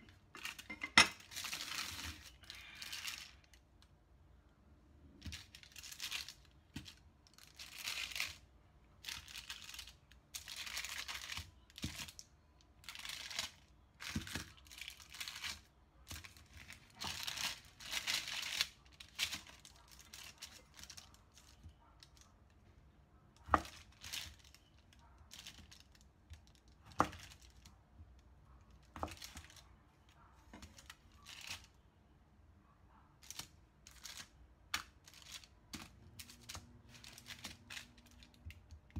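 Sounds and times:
baking paper rustling: 0.0s - 3.6s, 5.1s - 8.4s, 9.0s - 22.3s, 23.5s - 27.7s, 28.8s - 29.7s, 33.2s - 38.9s.

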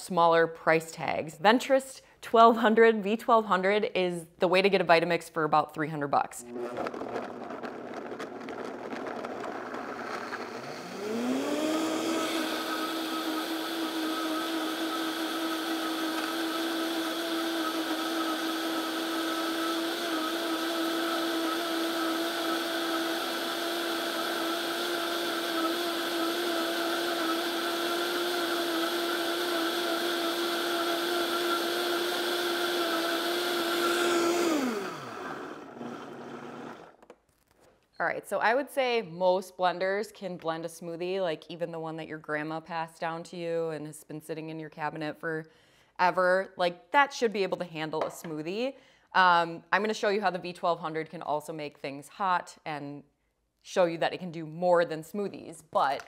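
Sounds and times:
blender motor whining: 6.4s - 37.1s.

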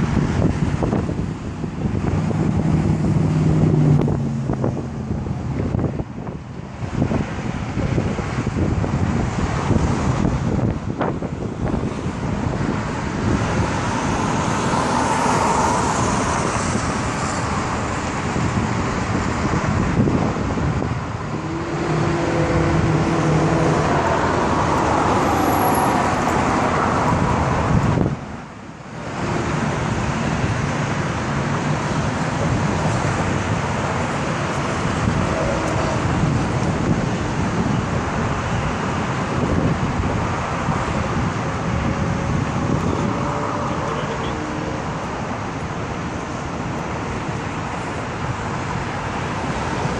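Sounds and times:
car engine: 0.0s - 49.9s
passing cars: 0.0s - 49.9s.

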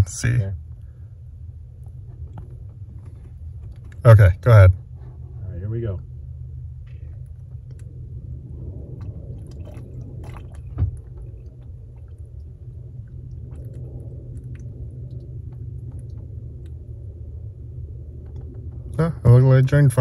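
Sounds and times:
steady low rumble: 0.0s - 20.0s
water gurgling through drain hose: 8.2s - 20.0s.

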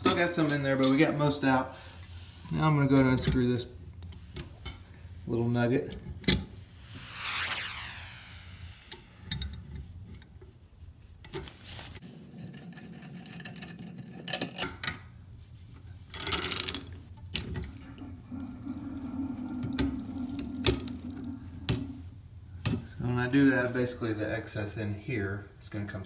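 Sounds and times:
water trickling out: 17.8s - 22.1s.

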